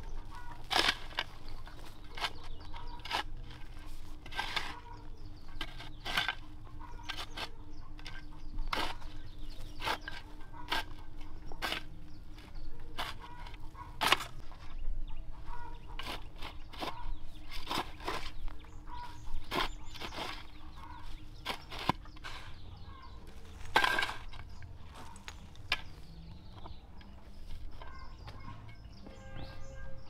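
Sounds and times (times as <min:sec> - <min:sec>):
chickens clucking: 0:00.0 - 0:29.2
sharp crackles and rustles: 0:23.2 - 0:28.8.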